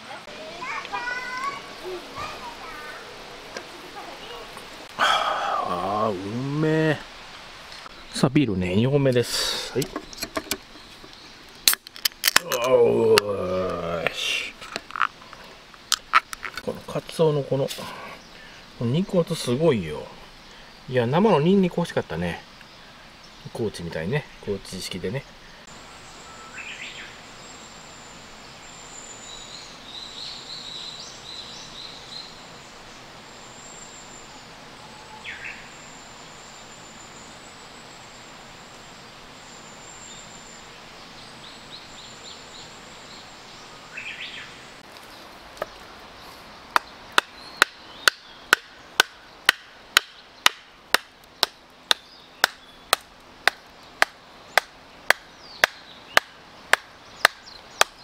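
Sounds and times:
bird chirps: 0:22.5 - 0:44.8, 0:45.6 - 0:50.7, 0:51.3 - 0:53.0, 0:53.8 - 0:58.0.

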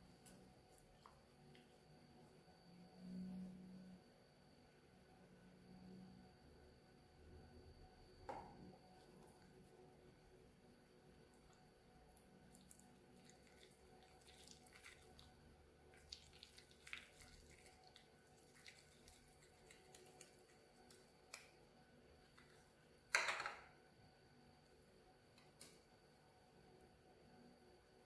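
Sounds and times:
slime squelch: 0:11.1 - 0:22.8
stick stirring slime: 0:11.2 - 0:21.6.

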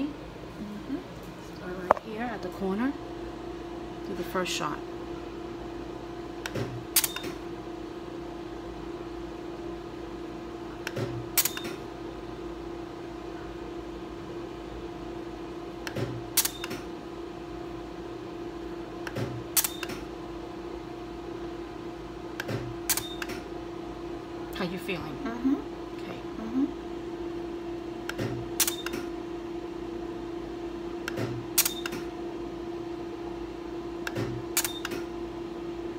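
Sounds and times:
laser unit hum: 0:00.0 - 0:35.9
laser pulse click and snap: 0:06.5 - 0:07.4, 0:10.9 - 0:11.8, 0:15.9 - 0:16.8, 0:19.1 - 0:20.0, 0:22.4 - 0:23.4, 0:28.1 - 0:29.1, 0:31.1 - 0:32.1, 0:34.1 - 0:35.1.

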